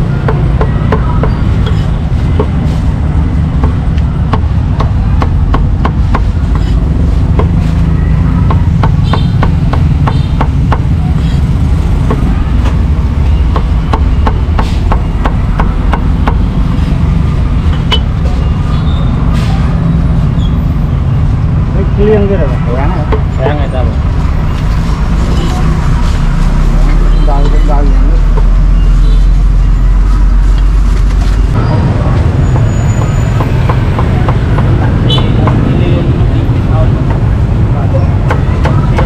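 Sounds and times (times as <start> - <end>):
street traffic rumble: 0.0 - 39.0
cleaver chopping on wooden block: 3.6 - 7.6, 8.4 - 11.0, 13.5 - 16.4, 38.2 - 39.0.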